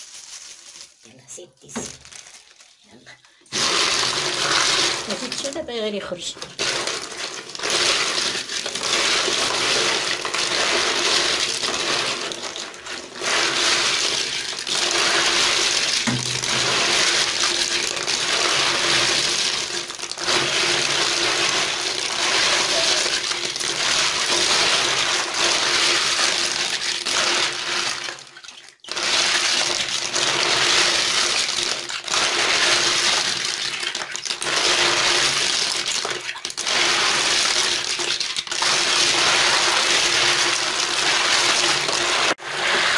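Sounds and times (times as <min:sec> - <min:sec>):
snail shells clattering and grinding: 0:03.5 - 0:42.9.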